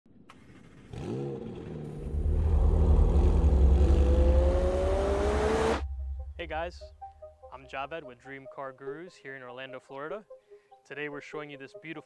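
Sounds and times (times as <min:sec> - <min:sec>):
car engine revving and accelerating: 0:00.7 - 0:05.9.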